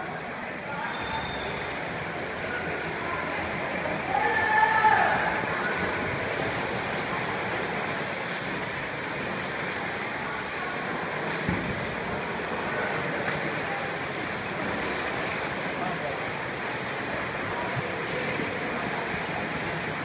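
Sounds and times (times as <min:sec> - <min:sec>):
swimmers splashing: 0:00.0 - 0:20.0.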